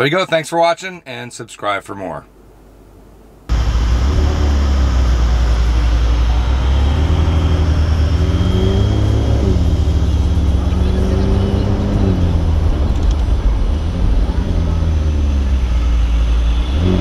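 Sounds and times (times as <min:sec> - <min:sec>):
car engine idling: 0:03.5 - 0:17.0.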